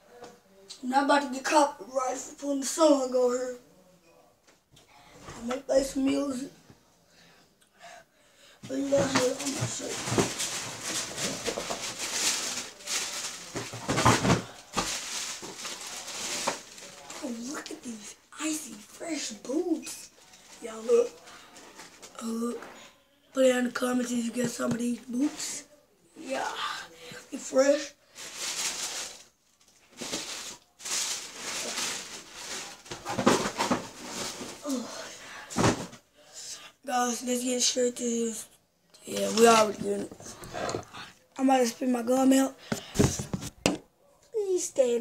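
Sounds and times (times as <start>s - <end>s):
rustling and shuffling: 8.6s - 22.8s, 27.1s - 36.1s, 39.1s - 43.8s.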